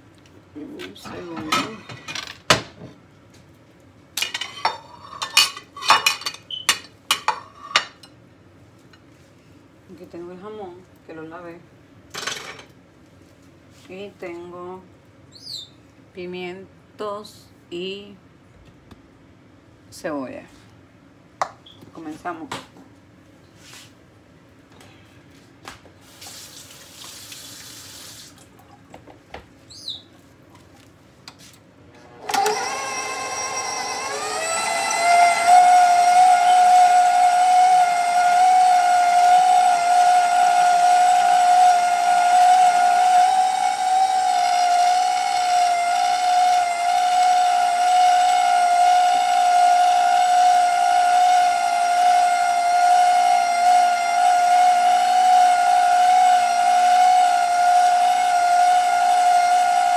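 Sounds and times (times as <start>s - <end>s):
mixer motor whining: 31.9s - 59.9s.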